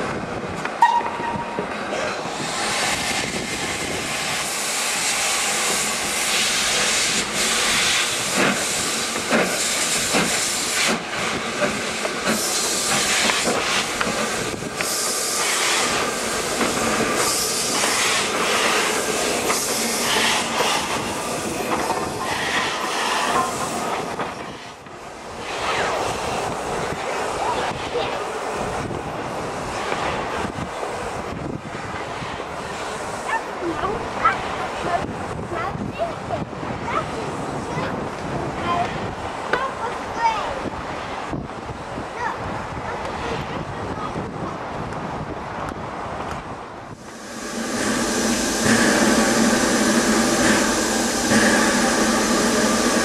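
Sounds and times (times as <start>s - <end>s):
steam locomotive exhaust beats: 0.1s - 33.4s, 45.7s - 53.0s.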